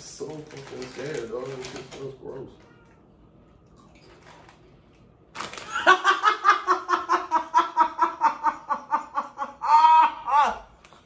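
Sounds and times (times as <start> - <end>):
woman laughing loudly: 5.7 - 10.6.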